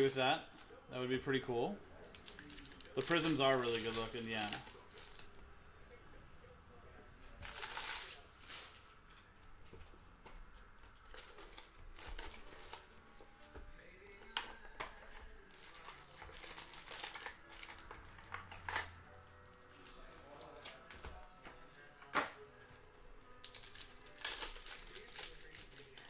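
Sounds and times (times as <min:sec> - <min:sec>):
foil wrappers crinkling: 0:02.0 - 0:05.4, 0:07.4 - 0:09.3, 0:10.8 - 0:19.0, 0:19.7 - 0:26.0
cards being handled: 0:02.1 - 0:05.3, 0:19.8 - 0:26.0.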